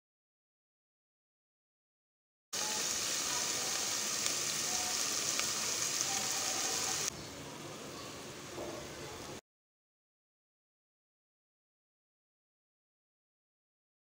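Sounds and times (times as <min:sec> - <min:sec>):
food sizzling in hot oil: 0:02.6 - 0:07.1.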